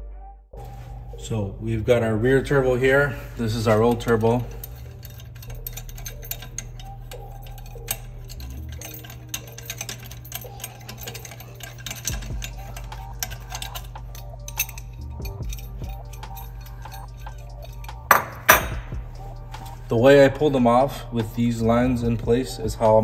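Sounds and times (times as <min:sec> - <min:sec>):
steady low hum: 0:00.6 - 0:23.0
clicks and taps of metal tools: 0:16.2 - 0:19.0.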